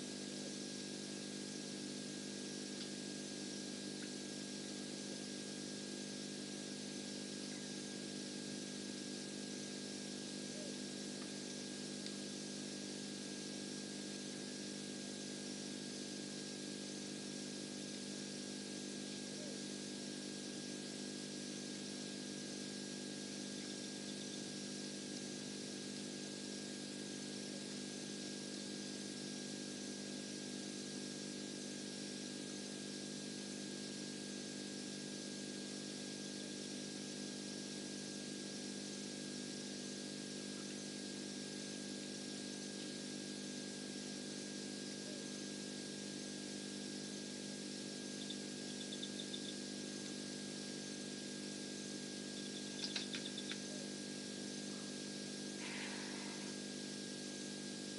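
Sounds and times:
electrical hum and hiss: 0.0s - 31.0s, 44.0s - 57.9s
faint high whine: 19.2s - 26.2s, 44.9s - 45.4s, 46.6s - 57.9s
faint short chirps: 52.3s - 53.9s
small clicks: 52.4s - 53.7s.

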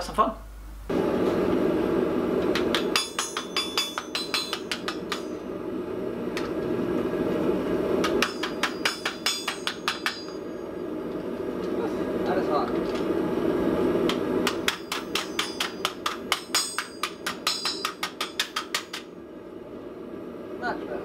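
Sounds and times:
hammer ringing on hot metal: 2.5s - 6.0s, 8.0s - 11.0s, 14.1s - 19.2s.

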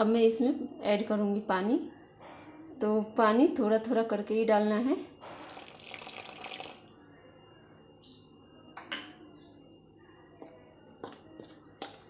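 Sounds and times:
water pouring into steel bowl: 5.3s - 6.8s.

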